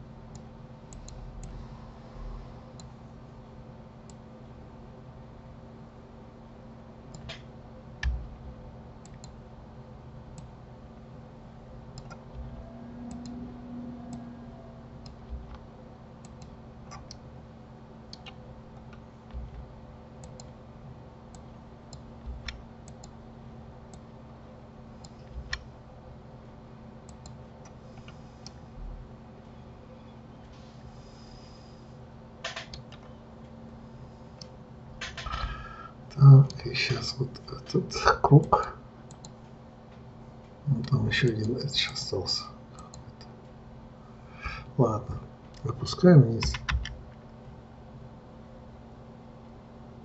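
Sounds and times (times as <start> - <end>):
low hum: 7.8 - 21.4.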